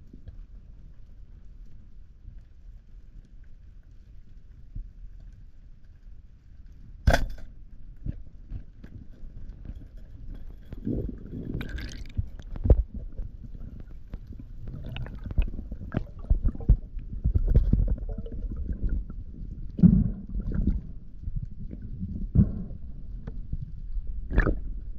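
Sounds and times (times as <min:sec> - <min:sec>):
muffled underwater rumble: 0:00.0 - 0:24.9.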